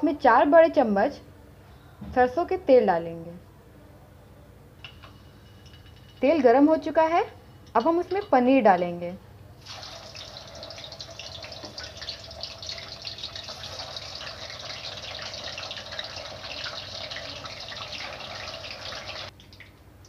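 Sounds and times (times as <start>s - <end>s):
cheese sizzling in hot oil: 9.6s - 19.3s.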